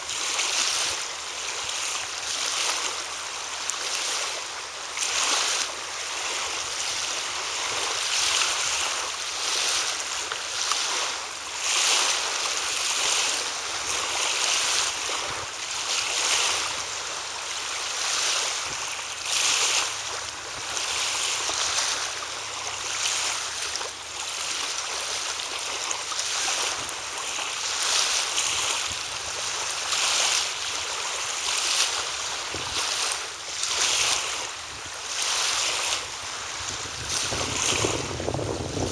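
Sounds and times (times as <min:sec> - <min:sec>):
lapping waves: 0:00.0 - 0:38.9
wind rushing: 0:36.7 - 0:38.9.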